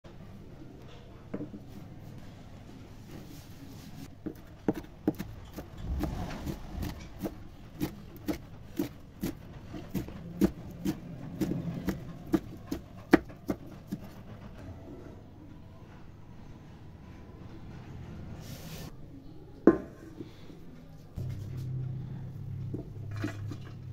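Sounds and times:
knife chopping on wooden board: 4.3s - 14.1s.

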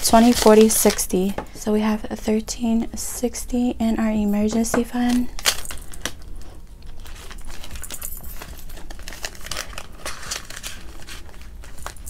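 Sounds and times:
paper bills rustling: 0.0s - 1.3s, 6.8s - 12.0s
plastic pouch crinkling: 0.0s - 1.4s, 5.1s - 12.0s.

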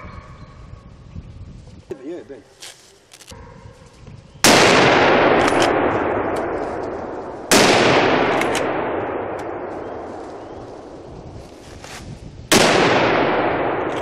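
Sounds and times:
rifle shots: 4.4s - 11.0s, 12.5s - 14.0s
rolling echo: 4.4s - 11.5s, 12.5s - 14.0s.

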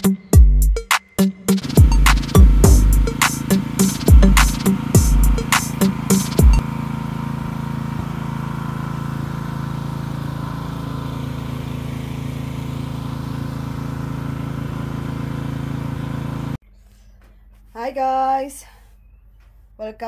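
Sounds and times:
engine humming steadily: 1.5s - 16.6s.

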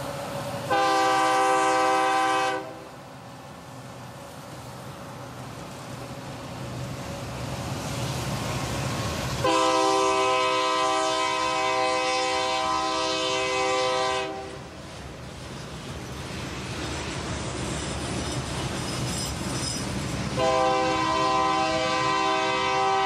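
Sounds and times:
diesel locomotives rumbling: 0.0s - 23.0s
locomotive air horn chord: 0.7s - 2.9s, 9.4s - 14.6s, 20.4s - 23.0s.

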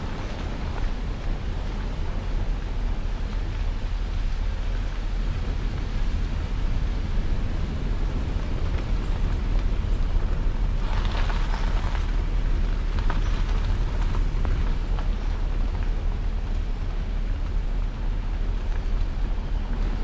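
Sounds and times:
crackling noise: 0.0s - 20.0s
vehicle rumbling on gravel road: 0.0s - 20.0s.

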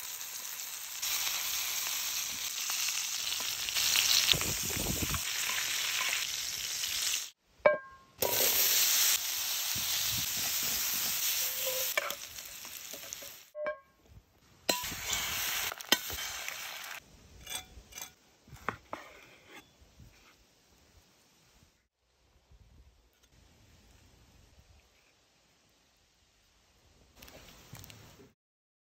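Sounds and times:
food sizzling in a skillet: 0.0s - 7.4s, 8.2s - 13.6s, 14.7s - 17.0s
metallic clink of skillet: 7.7s - 8.4s.

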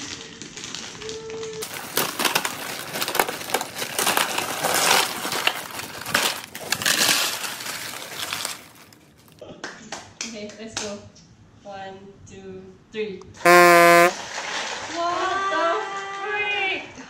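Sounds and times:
ice cubes clattering into basin: 1.6s - 9.3s.

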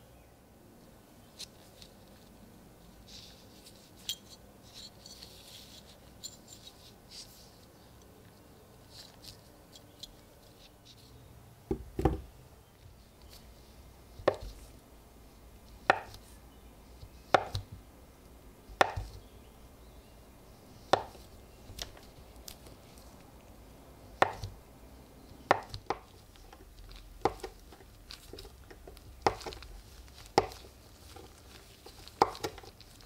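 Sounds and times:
knife slicing soap on board: 18.8s - 19.2s, 20.9s - 21.2s, 24.2s - 24.5s, 25.5s - 26.1s, 27.2s - 27.8s, 28.7s - 32.8s.

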